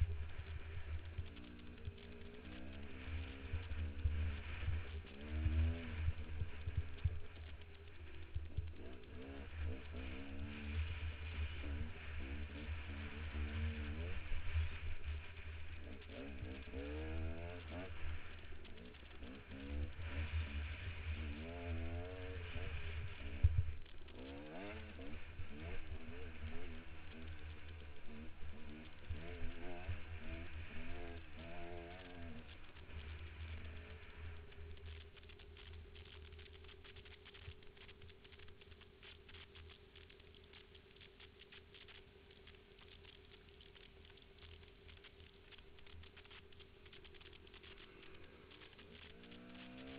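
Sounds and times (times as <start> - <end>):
dirt bike engine revving: 0.0 - 35.0, 47.1 - 49.9.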